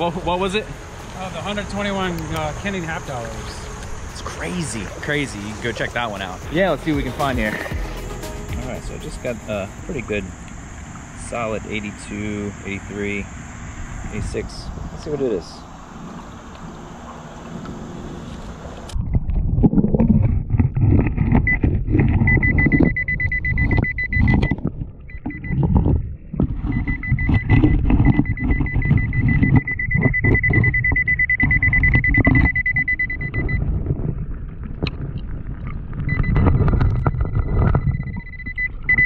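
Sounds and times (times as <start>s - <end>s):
high electronic detector tone: 0.0s - 13.3s, 21.4s - 25.7s, 26.7s - 33.6s, 36.1s - 39.0s
low underwater rumbling: 15.7s - 39.0s.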